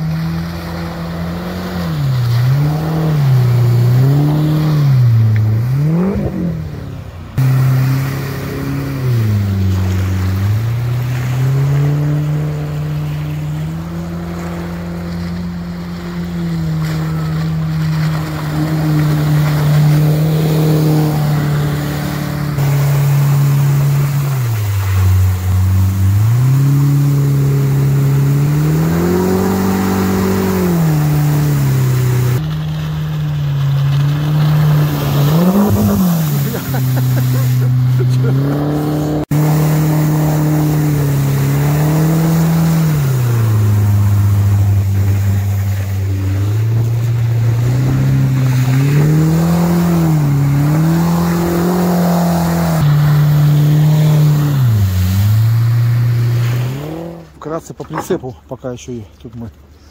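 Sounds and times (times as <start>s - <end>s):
outboard motor revving: 0.0s - 58.2s.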